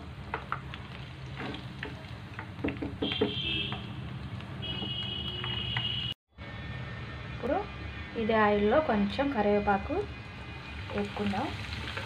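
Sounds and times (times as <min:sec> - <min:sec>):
food frying in hot oil: 0:00.0 - 0:05.2, 0:09.8 - 0:12.0.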